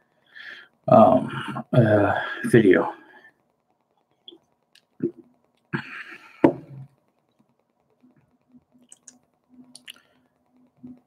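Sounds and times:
noisy breath: 0.0 - 3.5
man drinking: 9.8 - 10.0.

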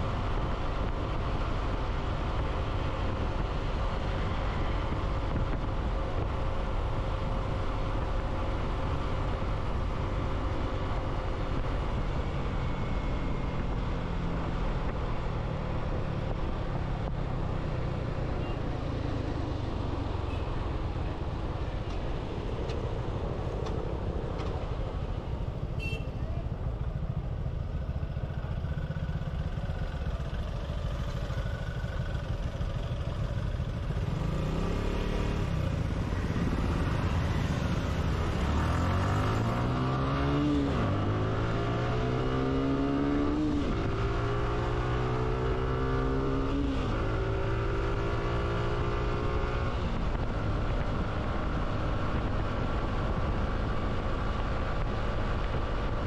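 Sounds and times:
wind and road rumble: 0.0 - 56.0
motorcycle engine accelerating: 27.8 - 56.0.

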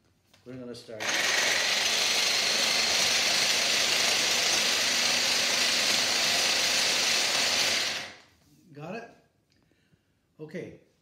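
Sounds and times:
hand blender whirring: 1.0 - 8.3.

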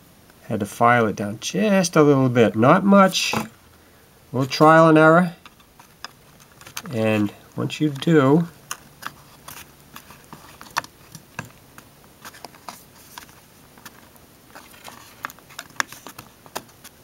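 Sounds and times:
plastic parts clicking and tapping: 5.4 - 7.0, 7.7 - 17.0.

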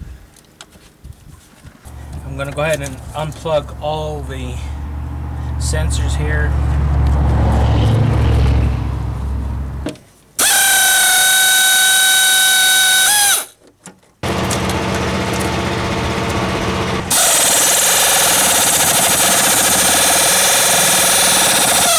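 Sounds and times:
power tool whining: 10.4 - 13.5, 14.2 - 21.9.

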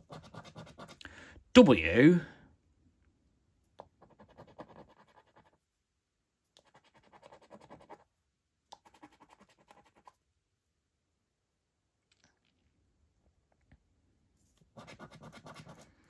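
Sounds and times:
scratchcard coating scraping: 0.0 - 1.0, 3.9 - 5.6, 6.6 - 8.1, 8.8 - 10.2, 14.7 - 16.0.

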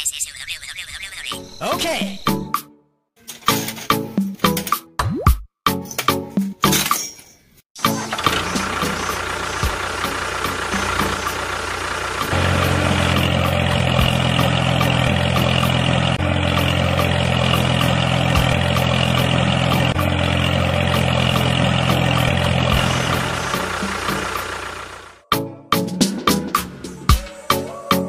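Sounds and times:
engine running: 7.8 - 25.2.

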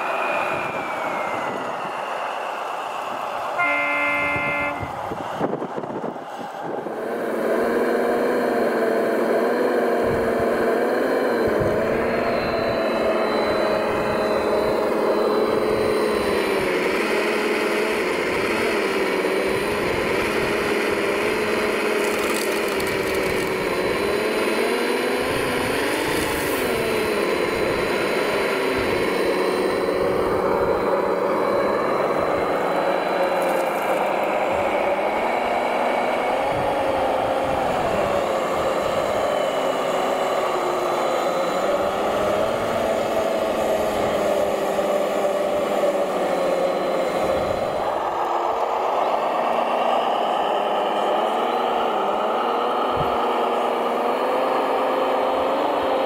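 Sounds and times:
model truck engine sound: 0.0 - 56.0
model truck horn toot: 3.6 - 5.0.

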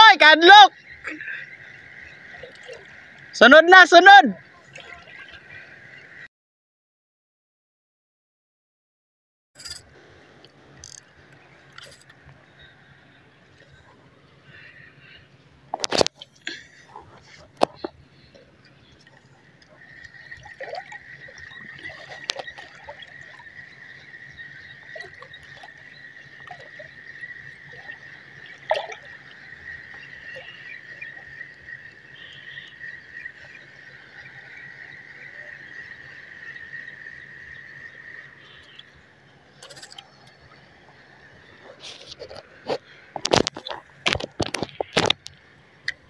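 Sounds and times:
fishing reel whirring: 10.8 - 11.0.

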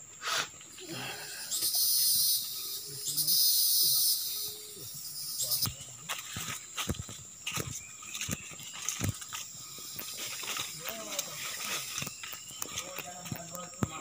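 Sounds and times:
insects buzzing: 0.0 - 14.0
footsteps on path: 4.9 - 14.0.

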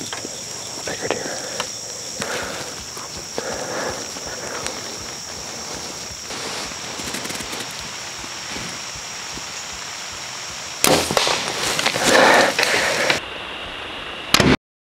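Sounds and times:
insect chorus buzzing: 0.0 - 14.3
bow shot crack: 10.8 - 13.2.

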